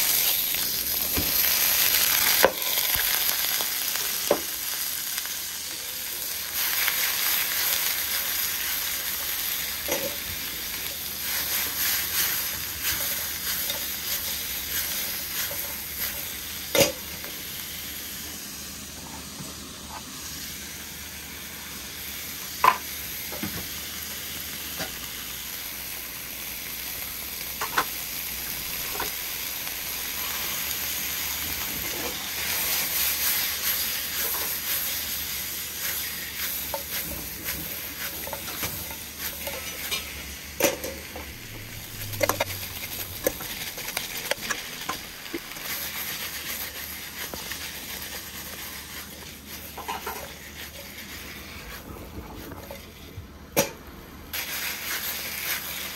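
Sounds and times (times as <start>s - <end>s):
food sizzling in a wok: 0.0s - 55.9s
metal spatula scraping a wok: 31.8s - 51.8s.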